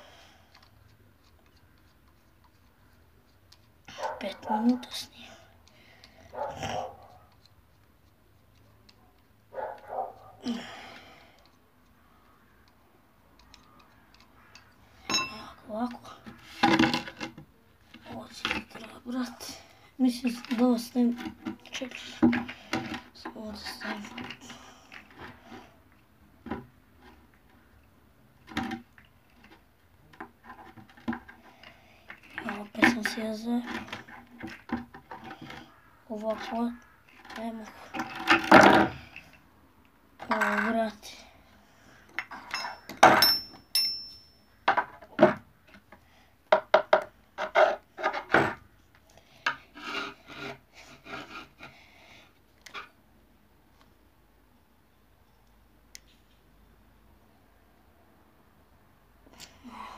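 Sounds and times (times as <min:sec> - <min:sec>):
ringing clink: 0:15.1 - 0:15.4, 0:42.5 - 0:44.5
wooden pieces knocking on board: 0:46.5 - 0:48.5
hand tool scraping wood: 0:49.5 - 0:51.8.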